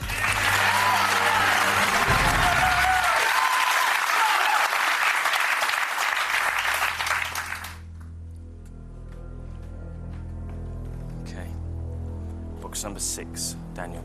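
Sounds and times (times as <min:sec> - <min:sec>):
low background music drone: 0:00.0 - 0:03.6, 0:06.1 - 0:14.0
audience applauding and cheering: 0:00.0 - 0:08.0.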